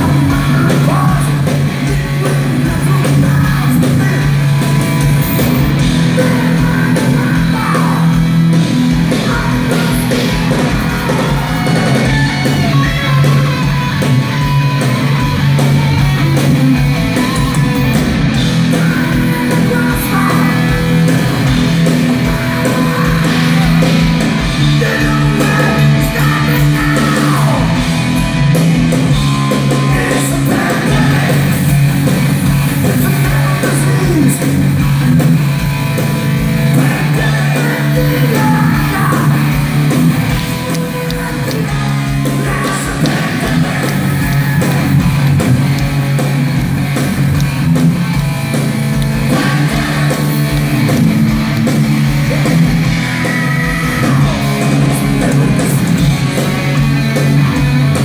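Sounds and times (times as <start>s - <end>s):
person singing: 0.0s - 14.0s, 18.6s - 27.9s, 29.6s - 31.8s, 32.8s - 34.6s, 36.7s - 45.3s, 49.2s - 50.5s, 52.3s - 56.2s
heavy metal band playing live: 0.0s - 58.0s.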